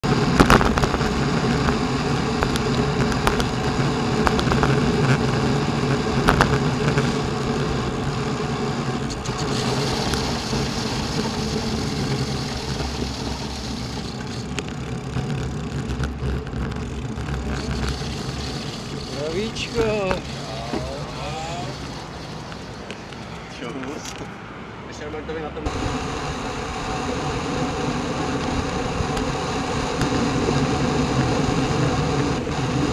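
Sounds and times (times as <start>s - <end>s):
bicycle road noise: 0.0s - 32.9s
wind rumble: 25.7s - 32.9s.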